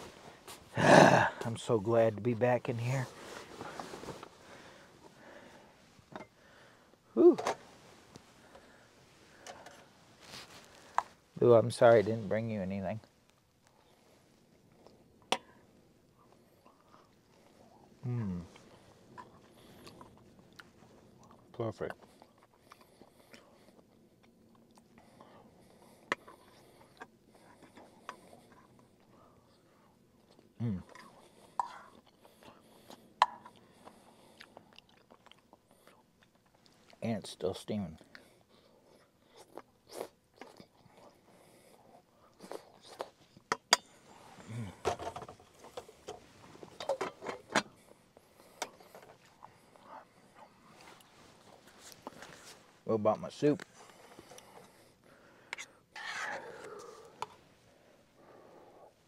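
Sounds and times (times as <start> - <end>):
person eating soup: 53.8 - 57.5.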